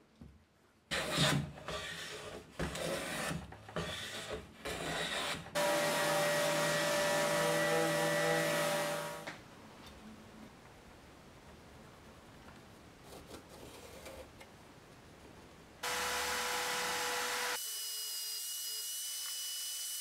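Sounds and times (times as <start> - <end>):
hand plane shaving wood: 0.9 - 9.0
electric palm sander running: 5.6 - 9.2, 15.8 - 17.6.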